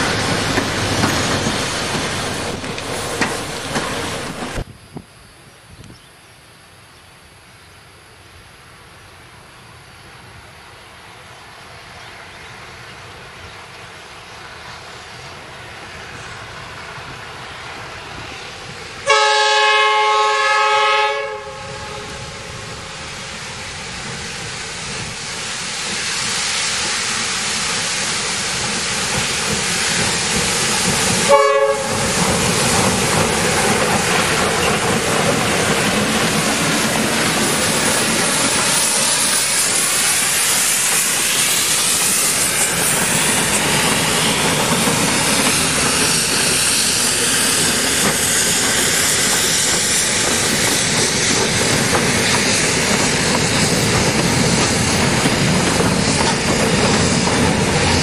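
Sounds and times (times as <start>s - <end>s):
train running noise: 0.0s - 5.4s, 8.4s - 58.0s
locomotive horn: 19.0s - 22.3s, 31.3s - 32.0s.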